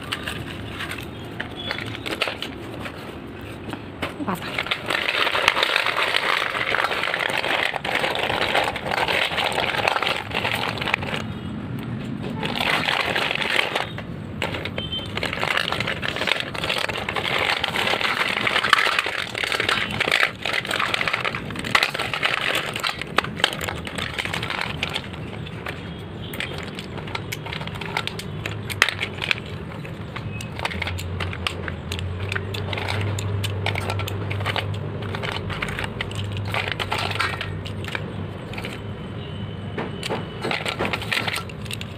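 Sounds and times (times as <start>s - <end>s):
slate pencils clattering in metal bowl: 0.0s - 11.4s, 12.3s - 39.0s, 40.0s - 41.9s.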